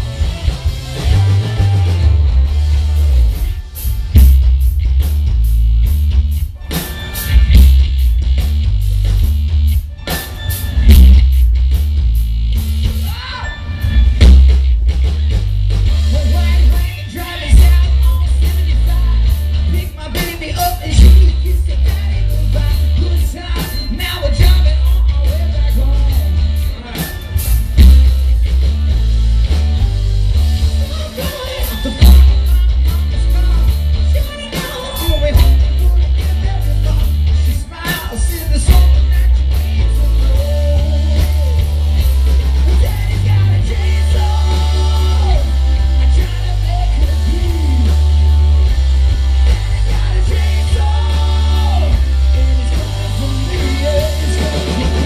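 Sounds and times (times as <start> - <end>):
person singing: 0.0 - 3.5, 30.8 - 41.9, 42.6 - 55.0
live rock band: 0.0 - 55.0.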